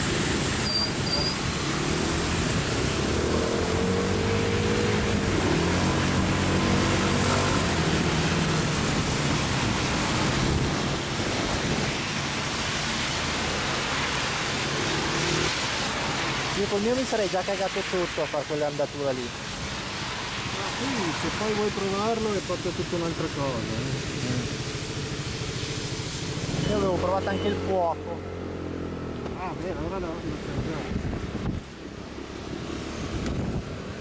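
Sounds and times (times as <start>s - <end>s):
rain and wind hiss: 0.0s - 34.0s.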